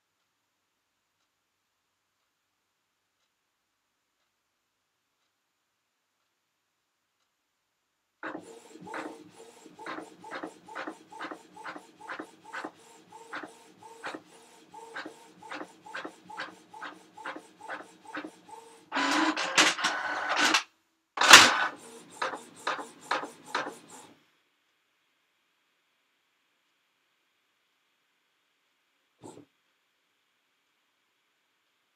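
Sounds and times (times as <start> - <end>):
printer clunk: 8.2 - 20.6, 21.2 - 24.1
printer rattling: 8.2 - 20.6, 21.2 - 24.1
printer strokes: 8.2 - 20.6, 21.2 - 24.1.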